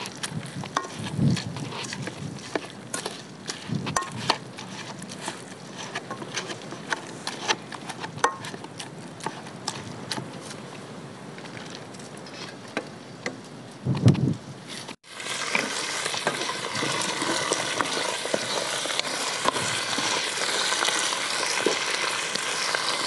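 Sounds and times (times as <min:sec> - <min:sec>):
metal masher in frying pan: 0:00.0 - 0:09.8, 0:15.4 - 0:23.0.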